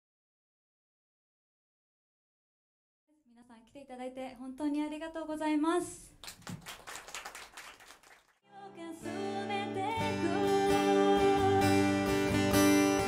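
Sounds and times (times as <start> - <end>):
audience clapping: 6.2 - 8.4
woman singing: 8.5 - 12.1
strummed acoustic guitar: 9.0 - 13.0.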